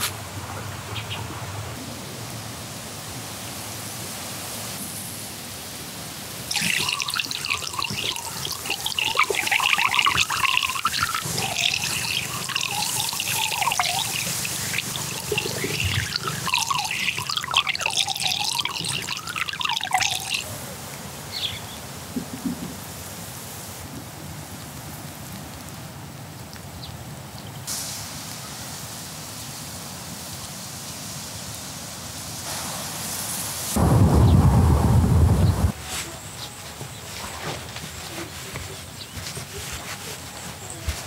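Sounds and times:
steady hiss: 0:00.0 - 0:26.1, 0:27.0 - 0:41.0
water pouring and gurgling: 0:06.5 - 0:20.5.

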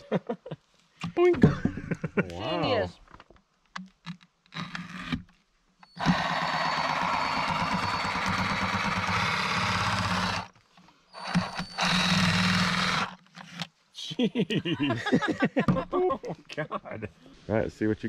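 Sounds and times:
oscillating multi-tool buzzing: 0:05.8 - 0:10.5, 0:11.1 - 0:13.6.

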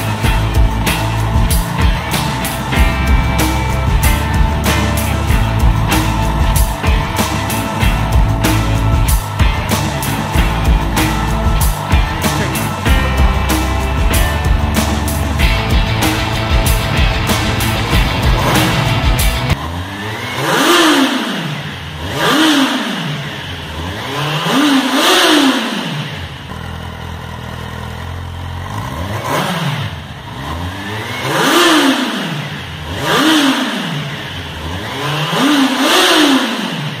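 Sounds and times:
motorcycle engine idling: 0:00.0 - 0:19.9, 0:25.6 - 0:34.8
motorcycle engine revving: 0:00.0 - 0:37.0.

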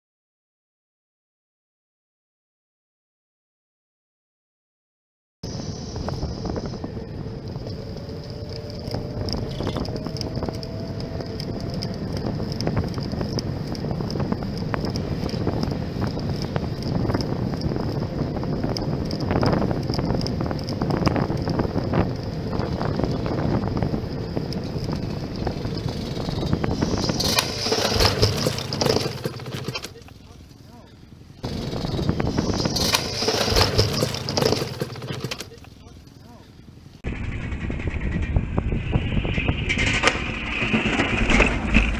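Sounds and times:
wind rushing over microphone: 0:05.4 - 0:29.8, 0:31.4 - 0:35.3, 0:37.0 - 0:41.9
bicycle tyre noise: 0:05.4 - 0:41.9.

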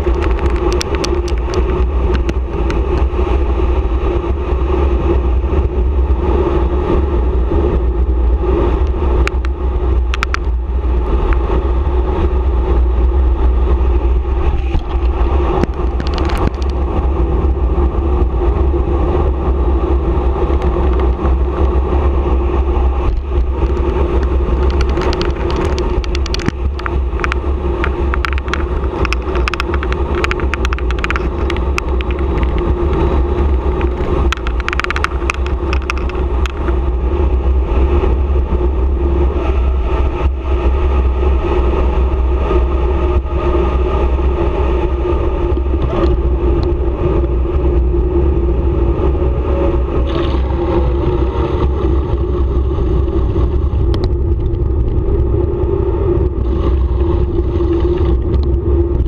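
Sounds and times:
bicycle clicks and rattles: 0:00.0 - 0:03.6, 0:08.7 - 0:11.5, 0:14.4 - 0:18.0, 0:19.8 - 0:38.2, 0:39.4 - 0:55.3, 0:56.2 - 0:59.0
tyre noise on asphalt: 0:00.0 - 0:59.0
wind rushing over microphone: 0:00.0 - 0:59.0.

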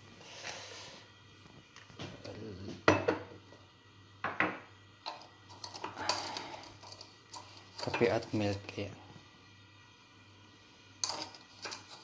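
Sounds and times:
ceramic mugs set down on stone: 0:02.7 - 0:03.4, 0:04.2 - 0:04.7.

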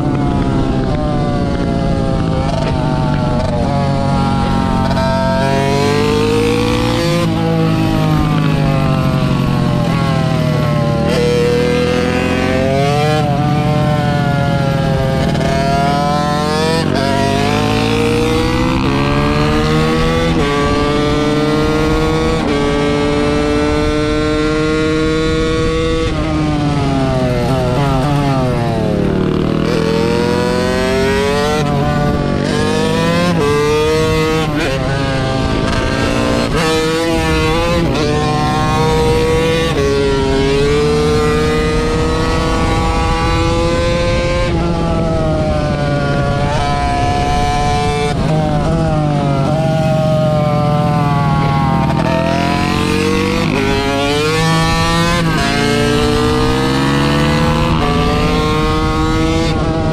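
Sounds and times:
small motorcycle engine revving: 0:00.0 - 0:59.9.

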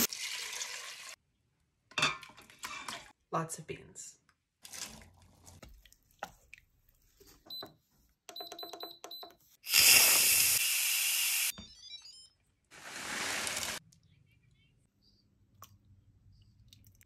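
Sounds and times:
steam hissing from valve: 0:09.7 - 0:11.5.

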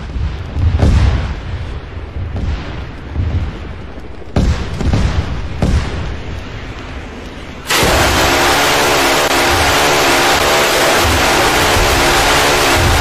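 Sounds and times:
explosion booms with rumble: 0:00.0 - 0:08.5.

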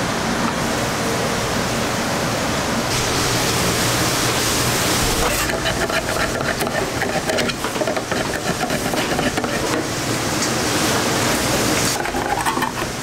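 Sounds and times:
can opener clicking and crunching: 0:05.3 - 0:09.9, 0:11.9 - 0:13.0.

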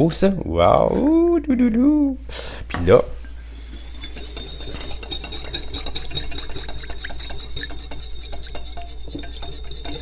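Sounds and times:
whisk clattering in glass bowl: 0:03.2 - 0:10.0.

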